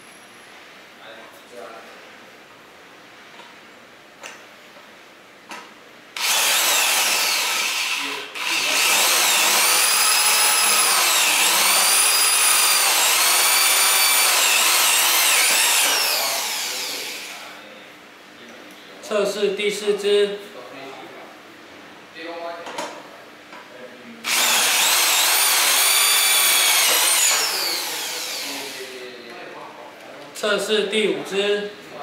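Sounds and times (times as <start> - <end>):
electric drill driving screw into steel: 6.2 - 17.4, 24.3 - 28.9.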